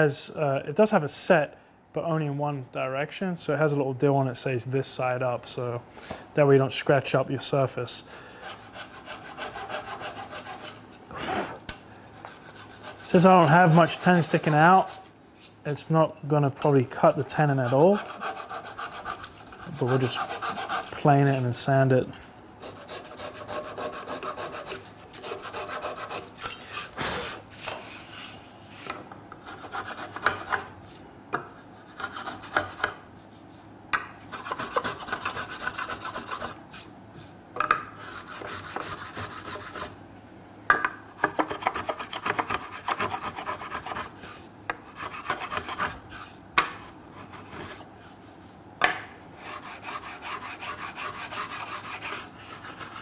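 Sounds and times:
saw rasping on wood: 8.4 - 11.5, 12.2 - 15.2, 17.2 - 21.5, 22.6 - 28.5, 29.4 - 30.7, 31.9 - 33.0, 34.3 - 36.6, 38.0 - 40.0, 41.3 - 46.4, 49.4 - 53.0.

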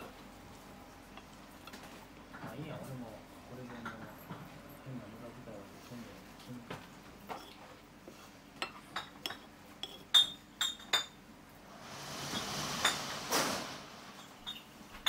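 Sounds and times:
dishes and utensils clinking: 3.6 - 4.6, 7.2 - 11.2, 12.2 - 15.0
hiss: 11.7 - 14.2.

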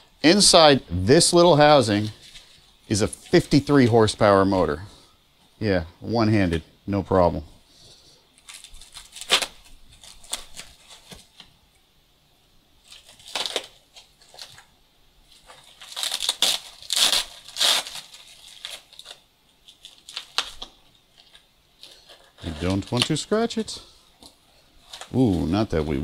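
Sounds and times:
hands tearing foam packaging: 8.4 - 11.4, 12.8 - 14.7, 15.4 - 23.4
knife cutting foam packaging: 12.9 - 14.6, 15.4 - 19.2.

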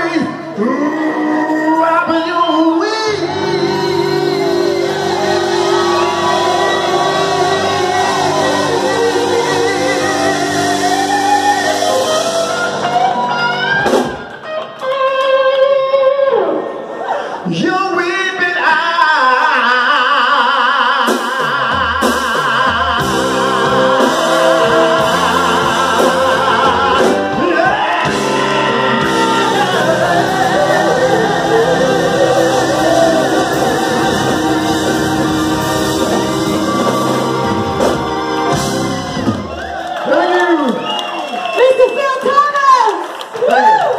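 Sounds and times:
person singing with vibrato: 0.0 - 13.7, 17.3 - 39.2
bass and drums playing: 3.2 - 14.3, 21.1 - 39.7.

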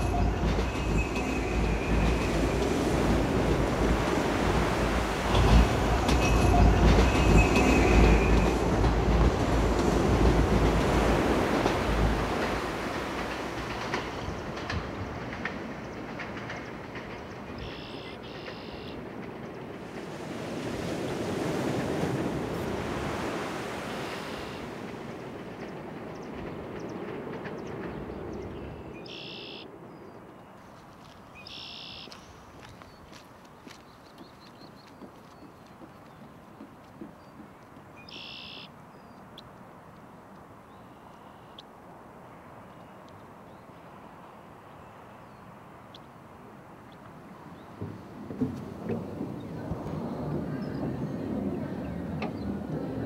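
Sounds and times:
ocean wave rushing in: 0.0 - 13.9, 19.8 - 25.5
beach ambience rush: 0.0 - 53.0.

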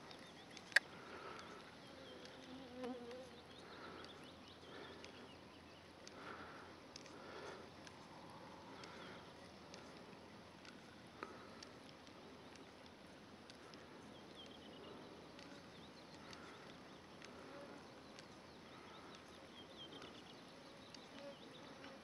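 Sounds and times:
distant bird chirps: 0.0 - 12.9.

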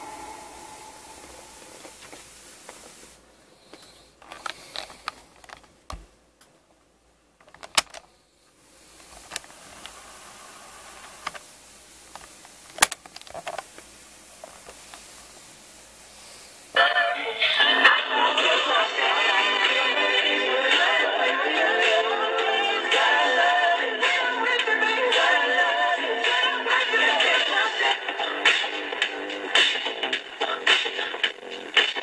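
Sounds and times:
music from tape: 0.0 - 2.2, 16.7 - 32.0
faint tape hiss: 0.0 - 32.0
cassette recorder keys clicking: 7.4 - 8.0.

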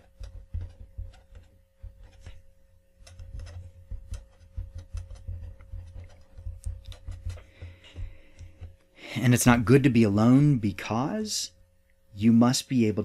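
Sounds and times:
marker writing on paper: 0.0 - 8.8.

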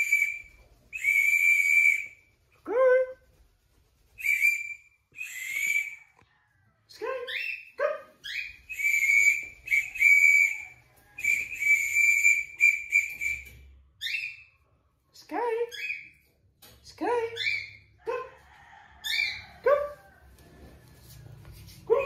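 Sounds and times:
whistle blasts: 8.7 - 13.6.

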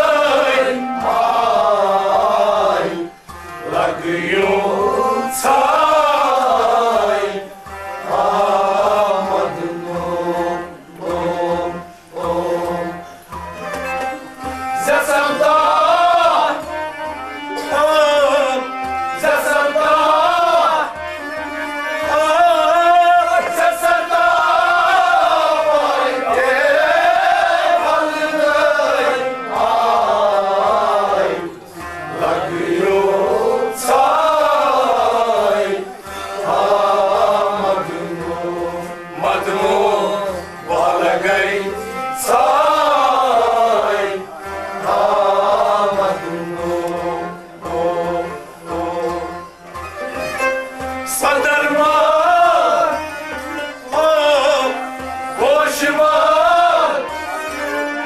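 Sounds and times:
man singing: 0.0 - 7.5, 14.7 - 16.8, 17.6 - 49.4, 51.0 - 58.0.

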